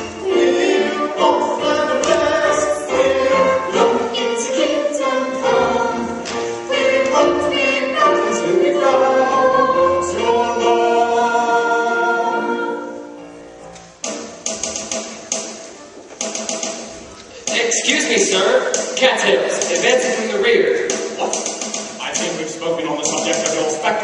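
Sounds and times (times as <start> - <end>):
chorus singing with accompaniment: 0.0 - 13.2.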